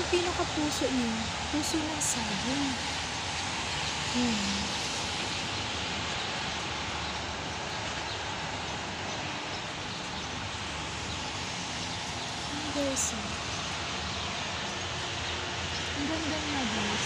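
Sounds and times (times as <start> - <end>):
low voice: 4.2 - 4.8.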